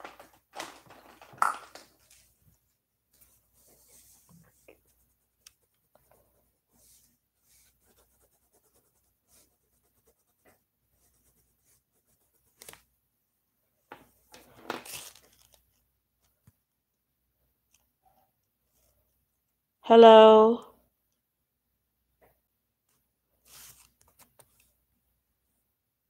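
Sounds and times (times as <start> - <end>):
rustling scrape: 3.2 - 5.2, 23.4 - 24.3
pen scratching on paper: 3.6 - 12.8.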